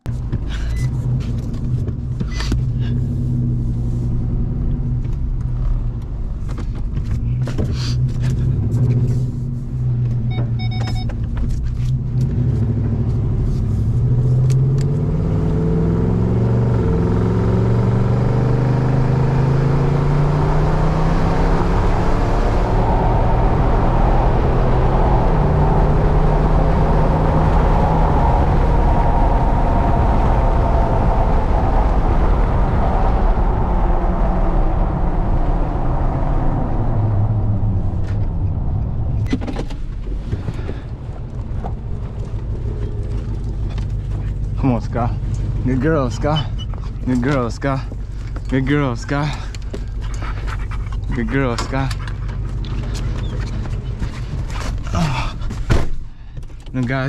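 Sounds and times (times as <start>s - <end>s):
knocks and rattles in cab: 0.0s - 2.9s, 6.0s - 9.0s, 39.2s - 57.0s
tyre and wind noise: 0.0s - 15.0s, 15.6s - 44.6s, 45.2s - 57.0s
truck engine from inside cab: 0.0s - 57.0s
short beep: 10.3s - 11.1s.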